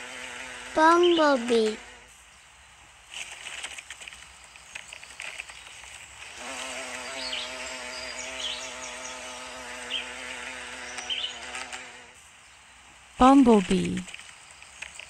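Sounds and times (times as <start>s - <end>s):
bumblebee buzzing in flight: 0.0s - 2.1s, 5.1s - 12.2s.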